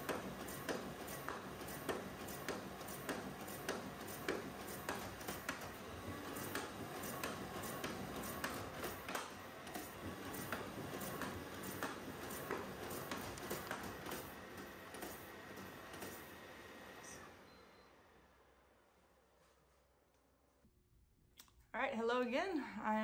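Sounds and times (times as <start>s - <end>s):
printer running: 0.0s - 18.2s.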